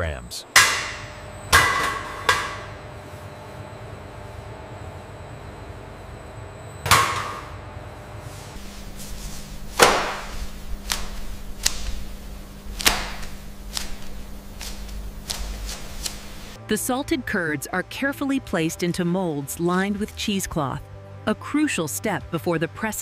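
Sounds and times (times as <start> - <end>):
low steady hum: 0.0 - 17.3
sharp metallic knocks: 0.5 - 2.8.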